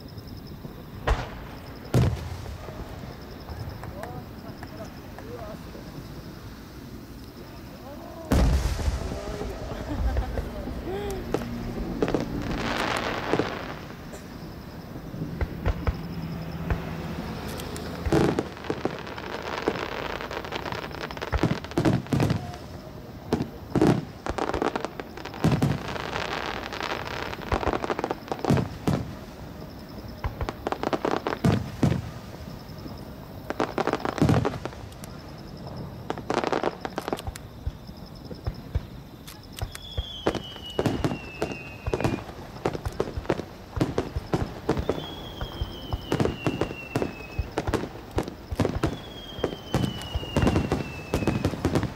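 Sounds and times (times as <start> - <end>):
firework crackling: 0.0 - 51.9
firework booms and bangs: 0.5 - 6.4, 8.2 - 51.9
falling whistling tones: 39.6 - 42.4, 44.7 - 47.7, 48.5 - 51.8.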